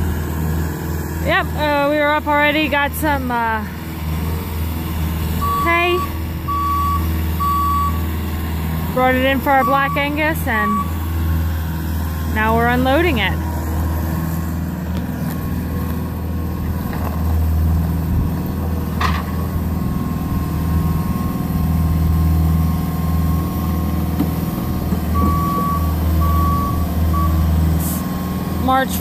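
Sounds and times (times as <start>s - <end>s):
diesel engine running: 0.0s - 29.0s
backup alarm beeps: 5.4s - 8.0s, 9.5s - 11.0s, 25.2s - 27.5s.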